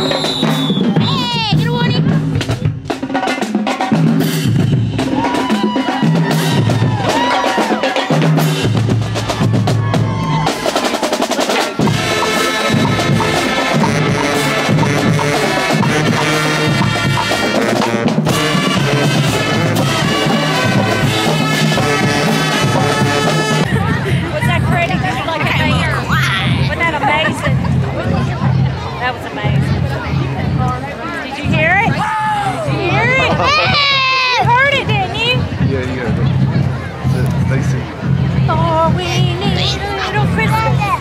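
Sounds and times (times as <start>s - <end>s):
snare and bass drums playing: 0.0s - 30.8s, 31.4s - 41.0s
band playing sustained notes: 8.4s - 27.8s.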